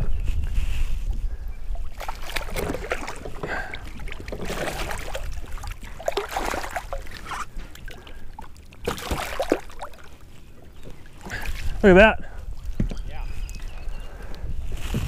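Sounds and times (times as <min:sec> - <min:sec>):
fish splashing at water surface: 0:01.8 - 0:10.2.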